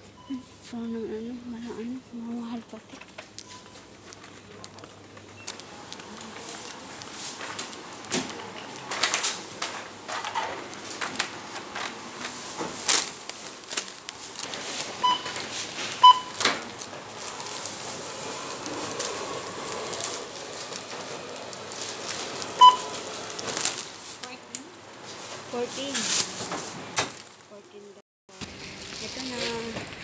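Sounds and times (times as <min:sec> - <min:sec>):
supermarket background noise: 0:00.0 - 0:30.0
short electronic beeps: 0:16.0 - 0:16.4, 0:22.6 - 0:22.9.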